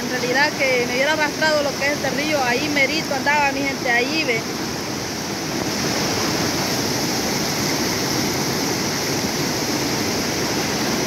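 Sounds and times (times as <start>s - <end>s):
river rushing over rocks: 0.0s - 11.0s.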